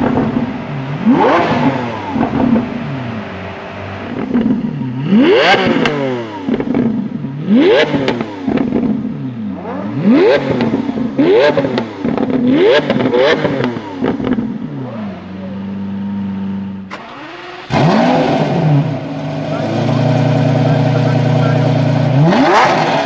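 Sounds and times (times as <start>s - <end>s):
exhaust crackles and pops: 0.0s - 2.8s, 4.0s - 9.2s, 10.4s - 14.7s
car engine idling: 0.0s - 23.0s
car engine revving: 0.0s - 23.0s.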